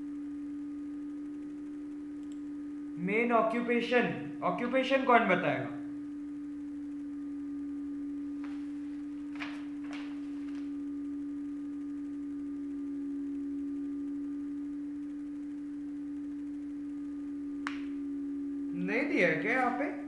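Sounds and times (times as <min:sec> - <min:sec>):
steady low hum: 0:00.0 - 0:20.0
faint clicks: 0:02.2 - 0:02.5.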